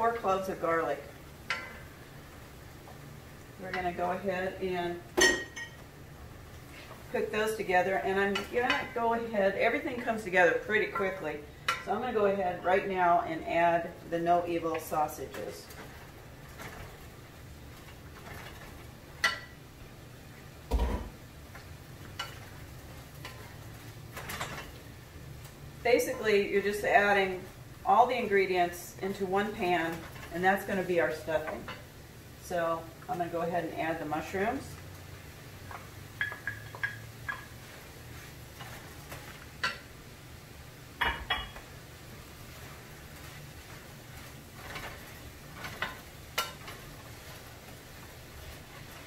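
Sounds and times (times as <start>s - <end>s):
wooden spoon stirring food: 5.1s - 25.6s, 34.1s - 49.0s
spoon knocking on pan: 36.2s - 37.5s.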